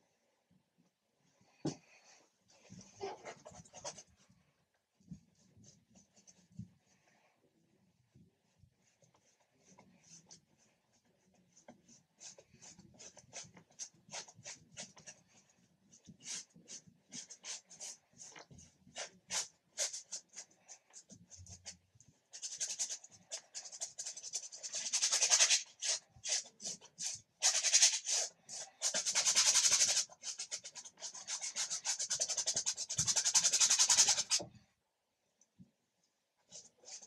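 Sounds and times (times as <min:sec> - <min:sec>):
paintbrush scrubbing on canvas: 0:08.9 - 0:34.5.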